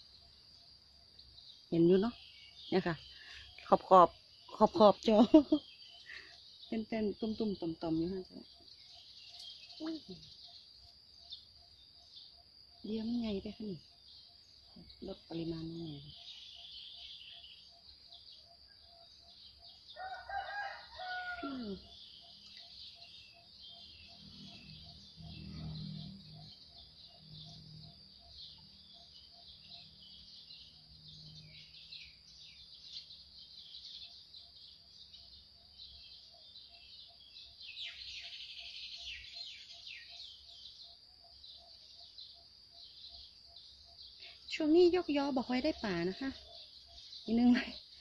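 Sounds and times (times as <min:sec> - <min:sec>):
small birds chirping: 0:00.0 - 0:48.0
rooster crowing: 0:19.9 - 0:21.8.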